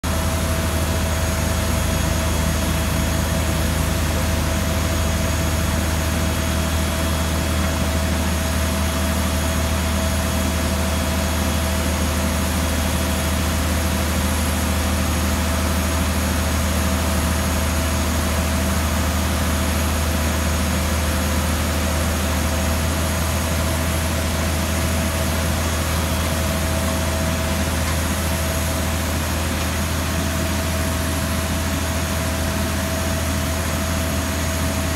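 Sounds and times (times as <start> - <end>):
engine deep drone: 0.0 - 34.9.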